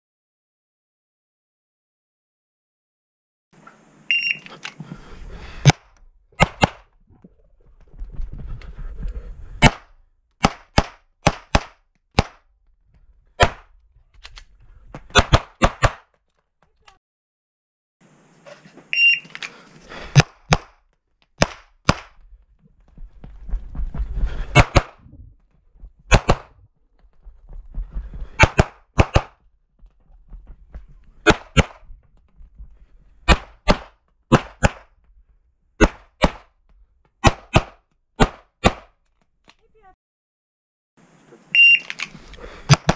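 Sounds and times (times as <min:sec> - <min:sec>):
shot timer beep: 0:04.1 - 0:04.4, 0:19.0 - 0:19.2, 0:41.6 - 0:41.8
pistol shots: 0:09.6 - 0:12.4, 0:26.1 - 0:26.5, 0:37.2 - 0:38.9.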